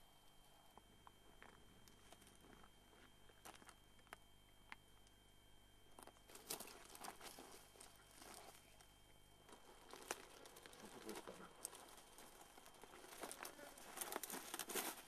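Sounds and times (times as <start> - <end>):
rustling of dry grass: 6.2 - 15.0.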